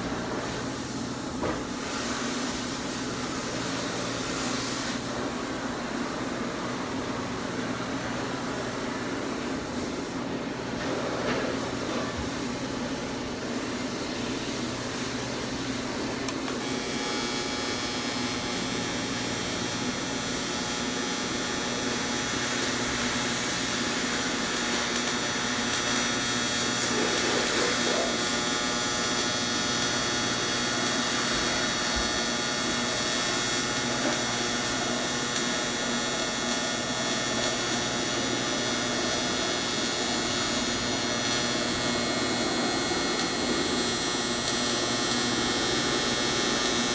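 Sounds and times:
welding arc buzzing: 13.9s - 46.9s.

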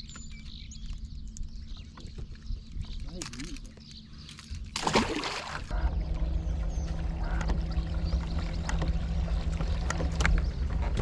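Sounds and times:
low rumble: 5.6s - 11.0s.

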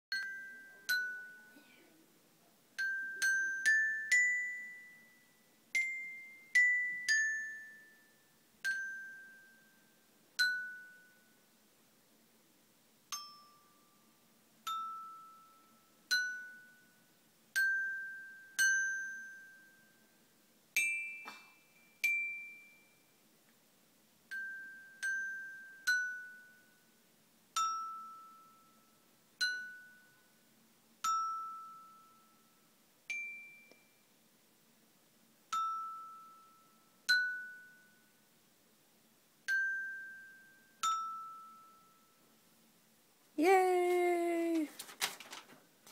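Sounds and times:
glockenspiel notes: 0.1s - 1.7s, 2.8s - 11.4s, 13.1s - 20.2s, 24.3s - 27.0s, 27.6s - 34.0s, 35.5s - 38.2s, 39.5s - 42.3s.

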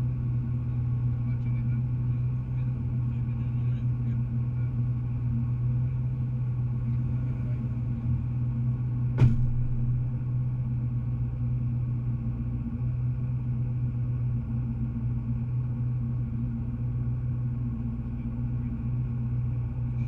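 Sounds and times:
car engine idling: 0.0s - 20.0s
sharp knock: 9.2s - 10.2s.

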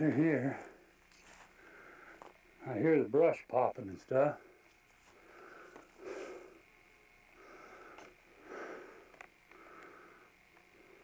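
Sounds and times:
person breathing heavily: 1.4s - 2.3s, 5.0s - 6.7s, 7.3s - 11.0s.

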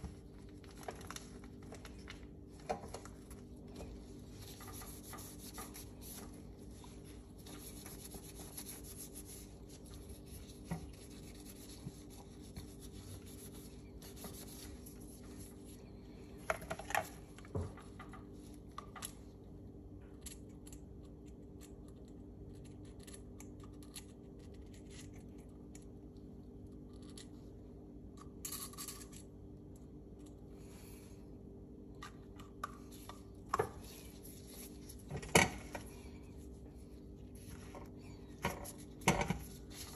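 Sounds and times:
steady low hum: 0.0s - 39.9s
gloved hands rubbing metal: 4.4s - 15.5s.

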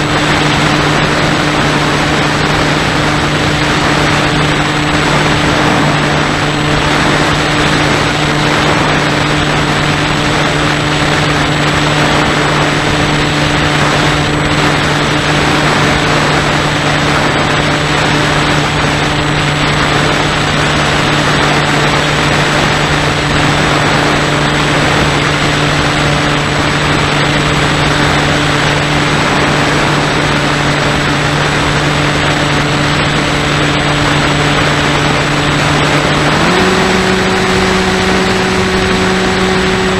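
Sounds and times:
loud rushing noise: 0.0s - 39.9s
model airplane motor and propeller: 0.0s - 39.9s.

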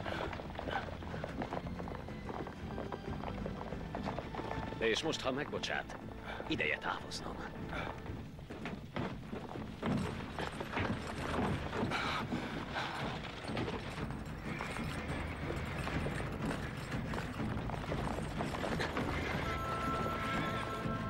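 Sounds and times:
horse hooves: 0.0s - 21.0s
music: 0.0s - 21.0s
carriage rattling: 7.5s - 21.0s.

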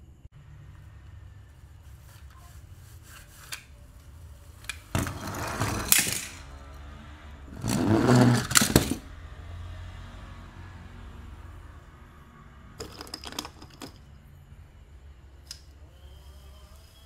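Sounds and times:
toy cars scraping and rustling: 1.9s - 6.8s, 7.5s - 9.1s.

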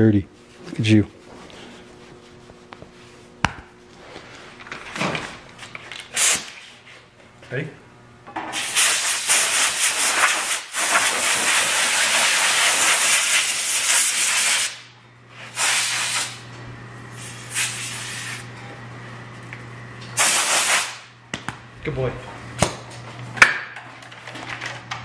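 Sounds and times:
air blow gun hissing: 8.5s - 14.8s, 17.2s - 18.4s, 20.2s - 21.0s.

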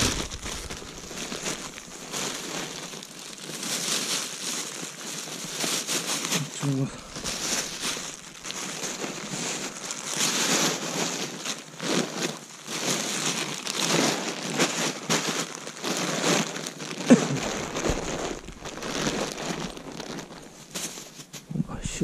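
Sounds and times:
close crunching and rustling: 0.0s - 22.0s.

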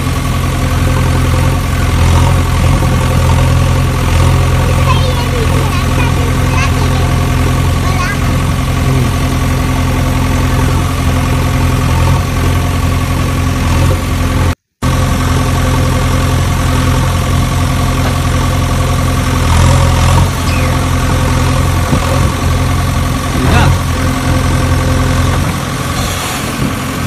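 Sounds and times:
engine idling: 0.0s - 27.0s.

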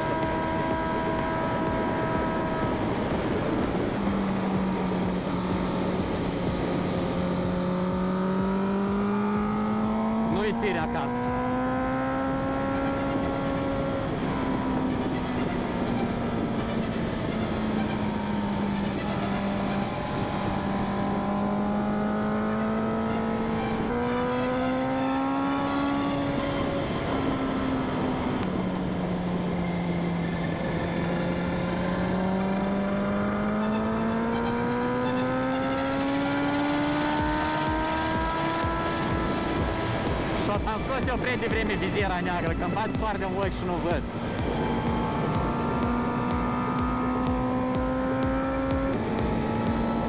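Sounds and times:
wind rush: 0.0s - 8.4s, 10.1s - 21.8s, 25.6s - 32.4s
motorcycle engine at speed: 0.0s - 50.0s.

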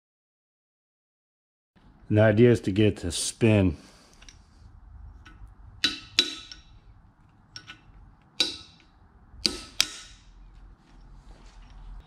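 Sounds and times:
light metal taps: 5.2s - 11.8s
hammer striking metal punch: 5.8s - 6.8s, 8.4s - 10.4s.

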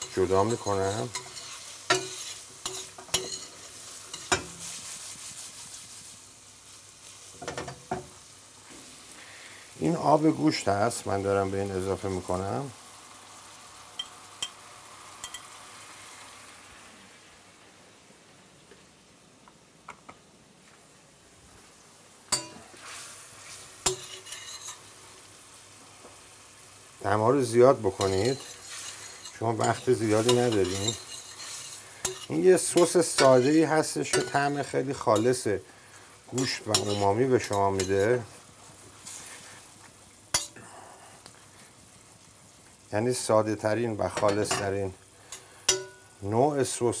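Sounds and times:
spoon scraping a pan: 0.0s - 6.0s, 15.2s - 15.6s, 22.3s - 25.0s, 27.6s - 35.5s, 36.4s - 40.6s, 44.1s - 46.2s
mushrooms sizzling in a frying pan: 0.0s - 19.8s, 20.6s - 47.0s.

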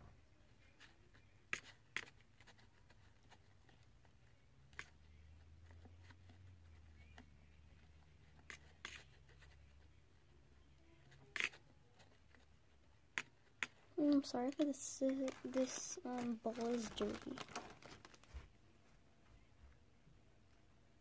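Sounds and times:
stick scraping slime in bowl: 11.2s - 11.6s.

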